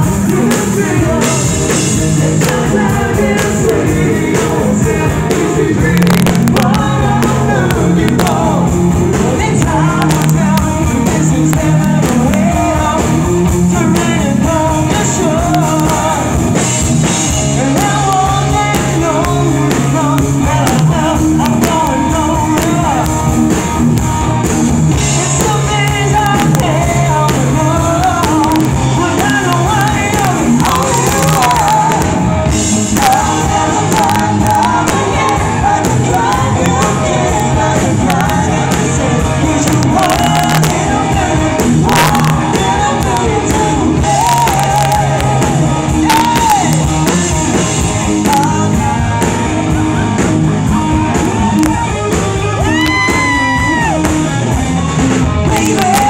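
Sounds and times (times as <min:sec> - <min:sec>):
male lead vocal singing: 0:00.0 - 0:24.1, 0:24.9 - 0:50.3, 0:51.1 - 0:56.0
bass guitar: 0:00.0 - 0:56.0
distorted electric guitars: 0:00.0 - 0:56.0
drum kit: 0:00.0 - 0:56.0.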